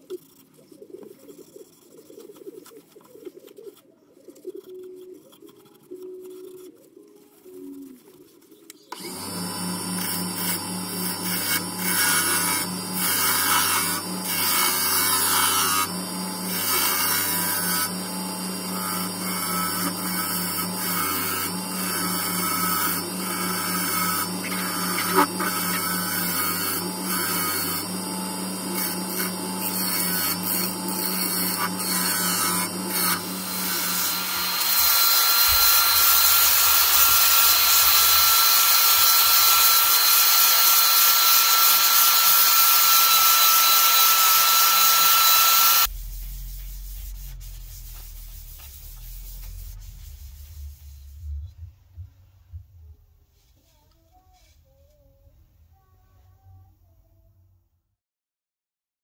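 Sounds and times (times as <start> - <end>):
gouge scraping and shaving wood: 0.0 - 45.9
wood lathe motor hum: 8.9 - 45.9
electric drill whine: 8.9 - 46.0.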